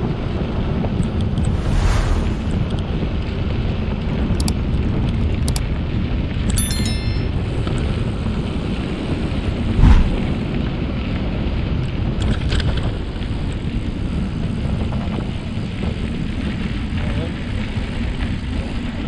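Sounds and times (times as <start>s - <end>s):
short high ringing note: 6.6s - 7.5s
wind buffeting microphone: 9.6s - 11.1s.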